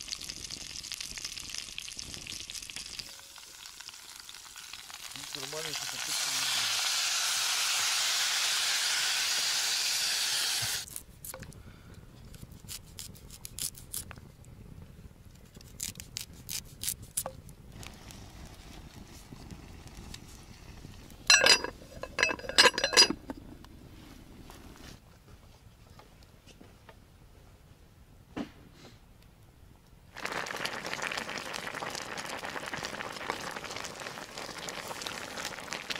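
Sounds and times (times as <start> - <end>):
water pouring into metal pot: 0.0 - 9.6, 21.3 - 23.2, 30.2 - 35.9.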